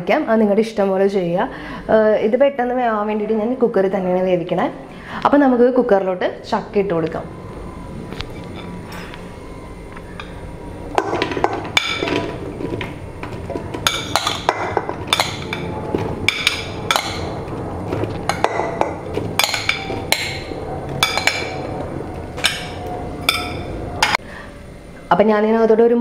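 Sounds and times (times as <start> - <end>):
fruit chunks clattering into metal pot: 11.0 - 17.3.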